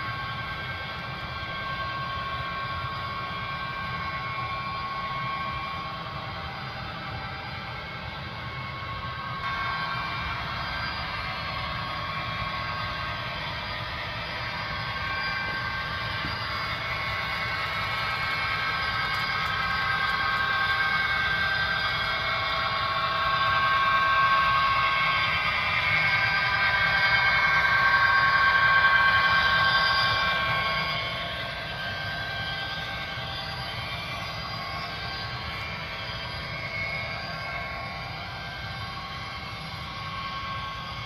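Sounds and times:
model train motor whine: 0.0 - 41.0.

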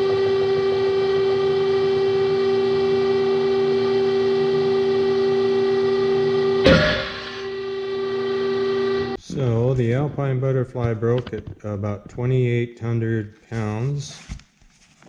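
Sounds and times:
motor whine: 0.0 - 9.2.

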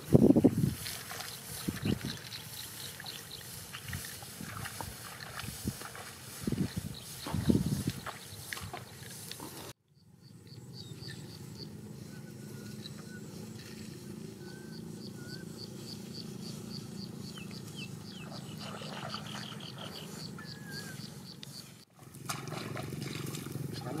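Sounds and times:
down-slurred bird chirps: 10.0 - 21.8
short whistled bird calls: 14.4 - 21.8.

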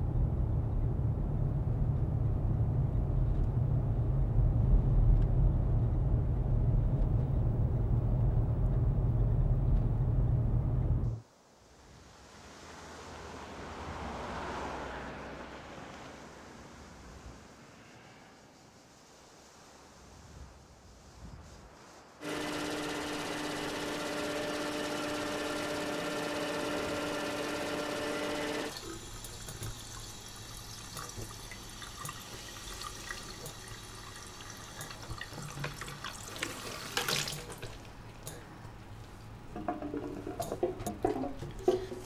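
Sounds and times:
pipe whine: 0.0 - 11.2, 22.2 - 31.6, 37.8 - 42.0
water rushing through pipes: 28.6 - 38.6, 39.5 - 42.0
water trickling into basin: 28.7 - 38.3
small clicks and drips: 28.7 - 41.9.

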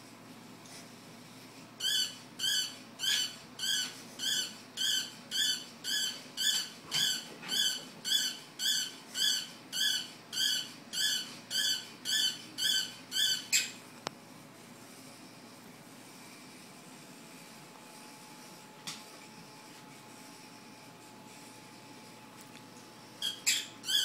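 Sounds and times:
toy robot dog yipping: 1.8 - 13.8, 23.2 - 24.0.

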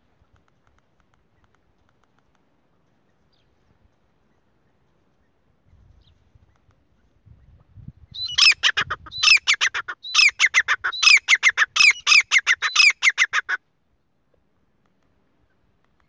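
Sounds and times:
francolin calling: 8.1 - 13.6.

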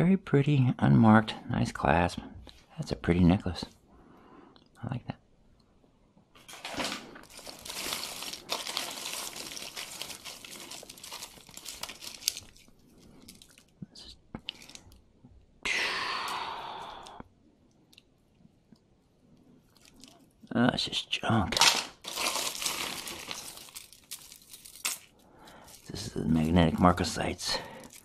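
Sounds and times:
jewelry crinkling and clicking: 6.4 - 13.8, 14.4 - 15.1, 19.6 - 20.4, 21.6 - 28.0.

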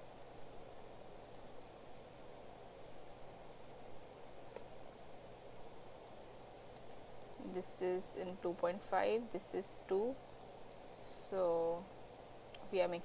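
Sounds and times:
faint background noise: 0.0 - 13.0
computer mouse clicking: 1.2 - 1.8, 3.2 - 3.4, 4.4 - 4.7, 5.9 - 6.2, 6.8 - 7.5, 10.3 - 10.8, 11.6 - 11.9.

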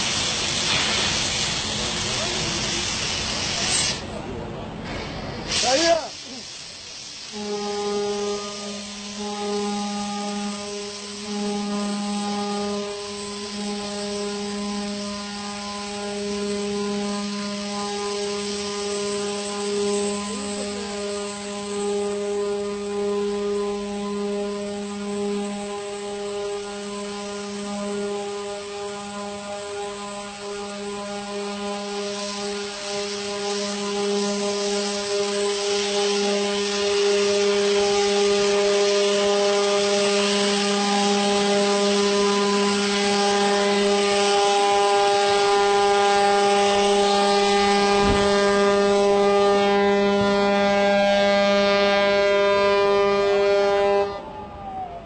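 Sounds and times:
ship's horn deep blast: 7.3 - 54.4.

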